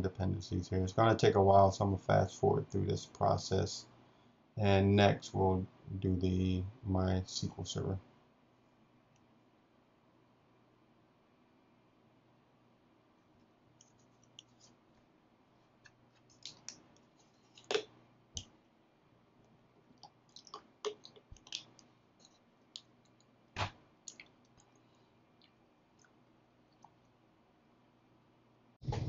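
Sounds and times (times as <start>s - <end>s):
faint clicks and taps: 13.3s - 15.1s, 15.8s - 18.6s, 19.4s - 26.2s.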